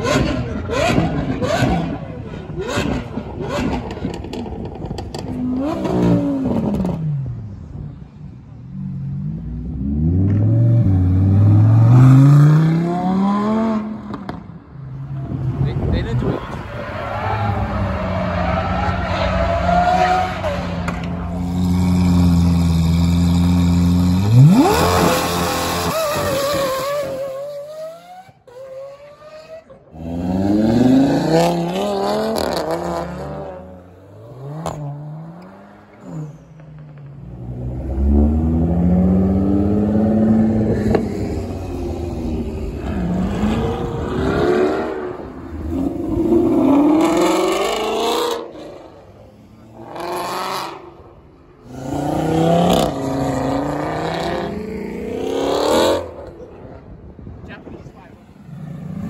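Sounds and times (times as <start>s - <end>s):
car engines revving and accelerating: 0.0s - 59.0s.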